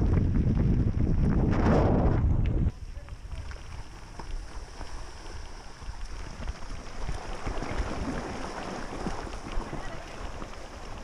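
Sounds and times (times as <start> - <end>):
wind and road vibration rumble: 0.0 - 11.0
small ticks and clicks: 2.4 - 7.9.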